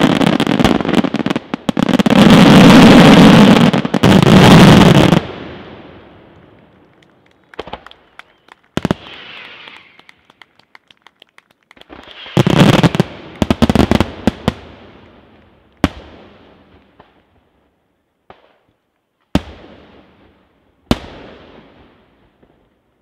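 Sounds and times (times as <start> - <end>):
fireworks bangs: 0.0 - 17.2.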